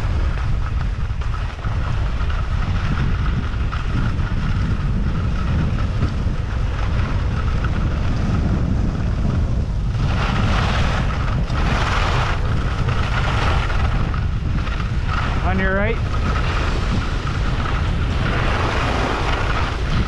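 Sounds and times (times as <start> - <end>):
skis rumbling on snow: 0.0 - 20.0
wind rushing over microphone: 0.0 - 20.0.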